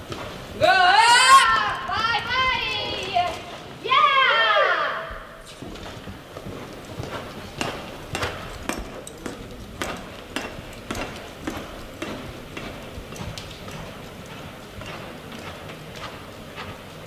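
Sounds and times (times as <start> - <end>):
horse hooves on dirt: 0.0 - 4.2, 5.1 - 17.0.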